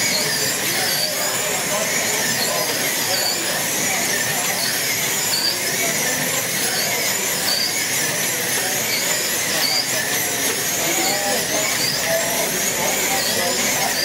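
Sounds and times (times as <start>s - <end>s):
slot car motors whining: 0.0s - 14.0s.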